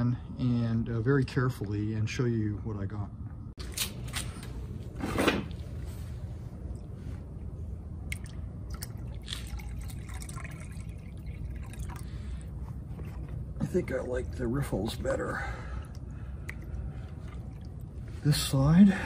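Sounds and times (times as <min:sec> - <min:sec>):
water sloshing and splashing: 0:08.0 - 0:19.0.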